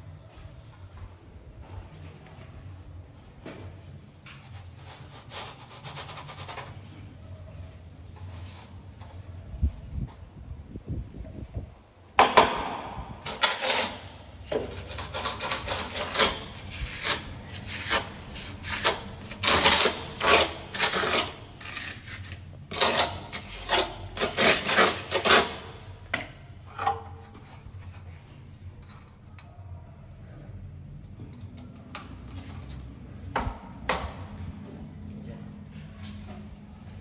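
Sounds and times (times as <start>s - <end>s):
scraping and rubbing strokes: 4.3s - 9.3s, 13.2s - 25.9s.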